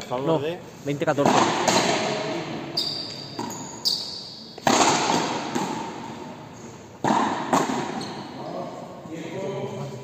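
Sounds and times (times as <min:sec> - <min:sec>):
rackets striking rubber ball: 0:01.2 - 0:02.2, 0:04.6 - 0:06.0, 0:07.0 - 0:08.0
ball rebounding off wall: 0:04.6 - 0:06.0, 0:07.0 - 0:08.0.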